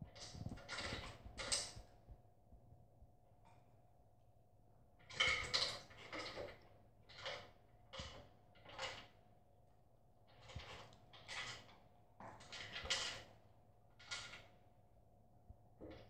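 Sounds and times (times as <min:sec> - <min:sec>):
dog crunching kibble in metal bowl: 0:05.0 - 0:09.0.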